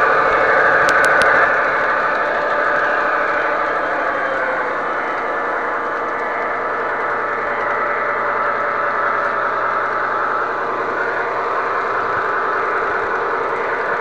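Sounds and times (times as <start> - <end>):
low hum: 0.0 - 14.0
model train wheels and motor whirring: 0.0 - 14.0.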